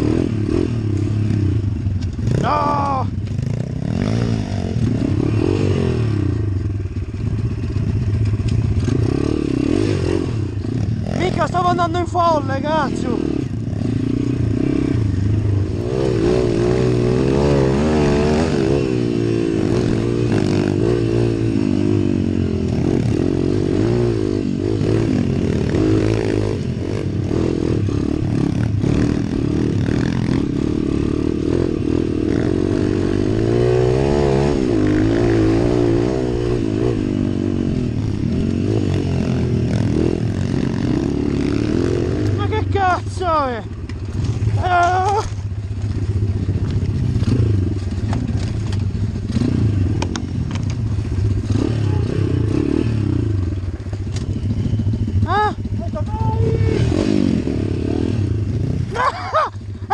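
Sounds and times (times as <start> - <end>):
pit bike engine revving: 0.0 - 59.9
bike rattle and clatter: 43.8 - 51.6.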